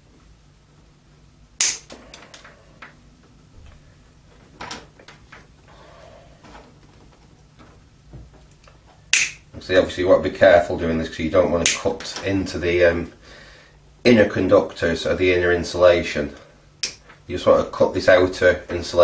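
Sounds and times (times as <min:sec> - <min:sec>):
sharp click: 0:01.6 - 0:02.2, 0:09.1 - 0:09.4, 0:11.6 - 0:11.9, 0:16.8 - 0:17.0
blade cutting cable insulation: 0:01.6 - 0:02.4.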